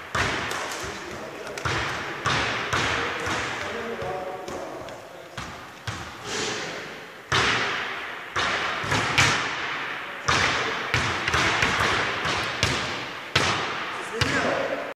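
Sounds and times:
basketball bouncing on wooden floor: 0:00.1 - 0:06.2, 0:07.3 - 0:09.6, 0:10.3 - 0:14.5.

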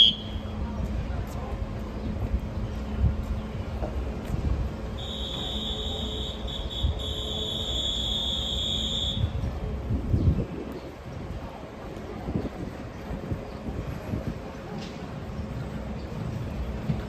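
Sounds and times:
low rumble of wind: 0:00.0 - 0:17.0
station noise: 0:04.8 - 0:09.8.

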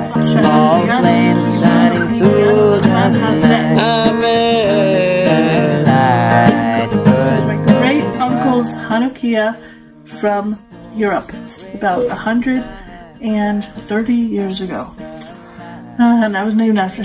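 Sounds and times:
acoustic guitar: 0:00.0 - 0:17.0
wavering melody line: 0:01.5 - 0:09.0, 0:10.8 - 0:14.0.

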